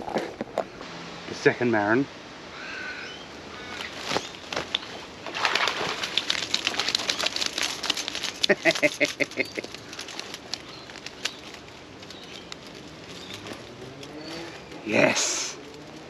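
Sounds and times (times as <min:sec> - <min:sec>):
bird calling: 0:02.5 - 0:07.5, 0:08.2 - 0:16.0
water splashing and dripping: 0:03.3 - 0:14.5.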